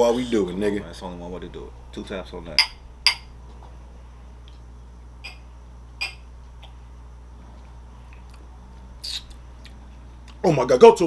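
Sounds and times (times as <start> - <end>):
low steady hum: 0.0 - 11.0
drinking glass tapped: 2.6 - 3.3, 6.0 - 6.2
glassware clicks: 2.6 - 3.3, 6.0 - 6.2.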